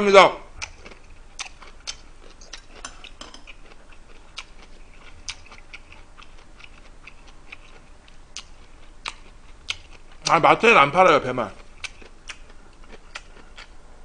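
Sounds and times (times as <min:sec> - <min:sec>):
person chewing food: 0:00.6 - 0:10.3, 0:11.5 - 0:13.8
metal spoon clinking: 0:02.8 - 0:03.5.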